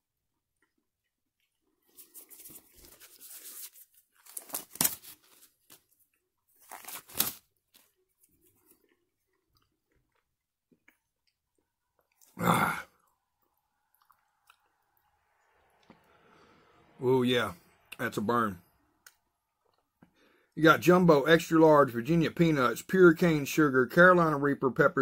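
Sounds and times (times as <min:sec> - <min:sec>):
disposable gloves crackling rustle: 0:01.8 - 0:08.6.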